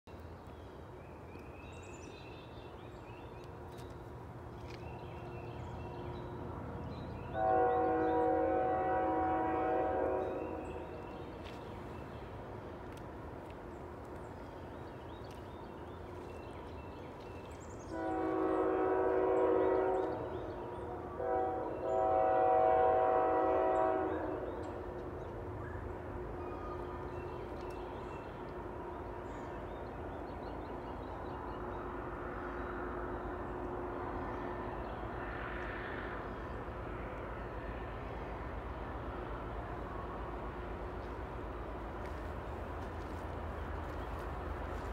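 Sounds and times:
train rumbling: 0:00.1 - 0:44.9
distant train air horn: 0:07.3 - 0:11.2, 0:17.8 - 0:25.0.

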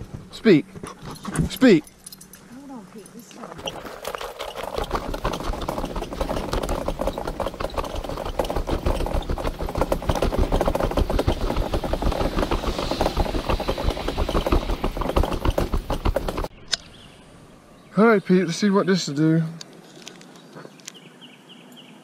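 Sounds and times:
handheld camera handling noise: 0:19.6 - 0:21.0.

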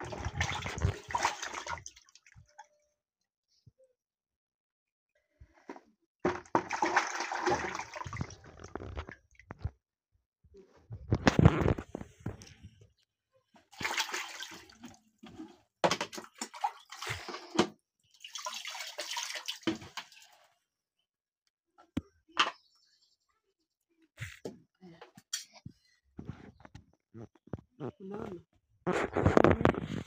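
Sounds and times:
hands splashing water in bucket: 0:00.0 - 0:02.4, 0:06.3 - 0:08.8, 0:13.7 - 0:15.0, 0:15.9 - 0:20.3.

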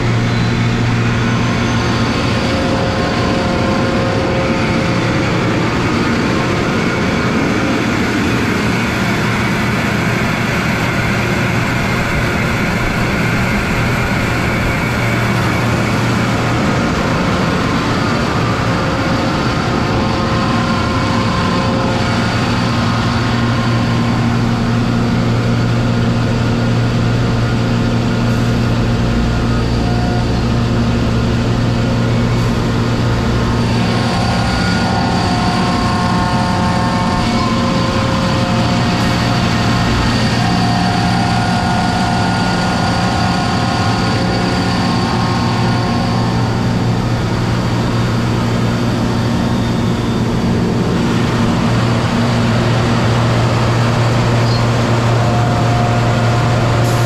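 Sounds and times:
air compressor humming: 0:00.0 - 0:57.0.

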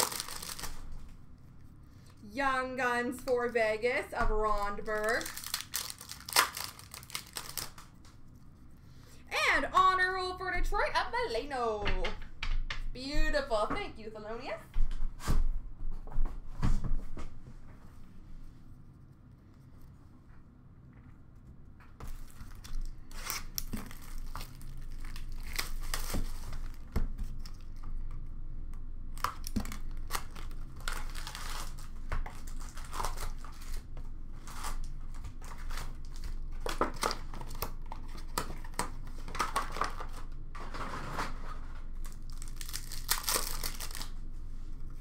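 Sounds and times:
wrappers crinkling and tearing: 0:00.0 - 0:01.1, 0:04.6 - 0:08.3, 0:22.1 - 0:27.8, 0:29.1 - 0:44.3.

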